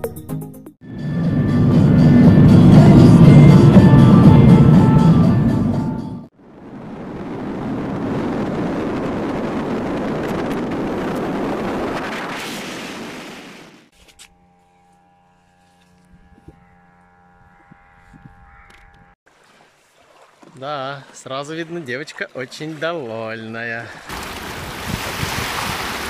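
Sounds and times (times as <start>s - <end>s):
wind rushing over microphone: 6.4s - 13.8s, 17.4s - 19.2s, 24.1s - 26.0s.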